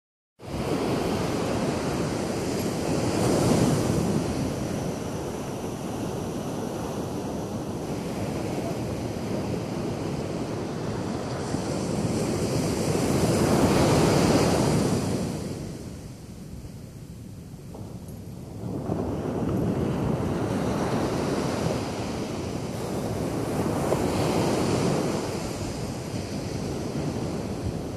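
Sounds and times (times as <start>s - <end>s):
waves breaking on beach: 0.4s - 16.3s, 18.4s - 27.9s.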